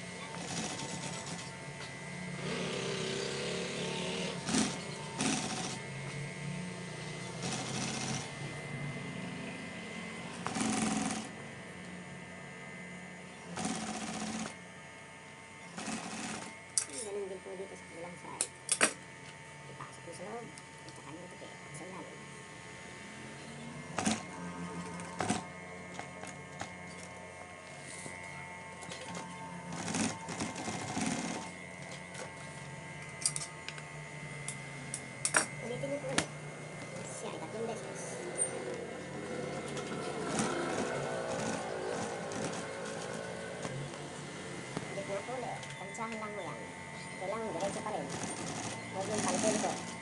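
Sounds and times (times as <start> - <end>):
steady machine hum: 0.0 - 50.0
sewing machine stitching: 0.3 - 1.6, 2.4 - 5.8, 7.4 - 8.4, 10.4 - 11.3, 13.6 - 14.6, 15.8 - 16.5, 24.0 - 24.2, 24.8 - 25.4, 29.0 - 31.6, 39.6 - 43.4, 47.6 - 50.0.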